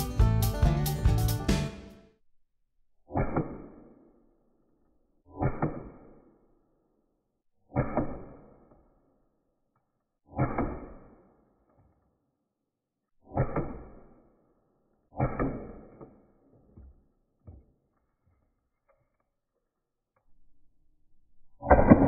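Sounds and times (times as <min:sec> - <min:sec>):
air pistol shots: 0:03.1 - 0:04.0, 0:05.3 - 0:06.2, 0:07.7 - 0:08.7, 0:10.3 - 0:11.2, 0:13.3 - 0:14.2.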